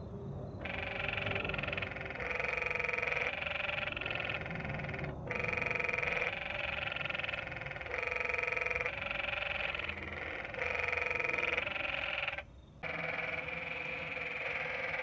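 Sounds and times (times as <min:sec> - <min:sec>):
treefrog pulsed calls: 0:00.0 - 0:15.0.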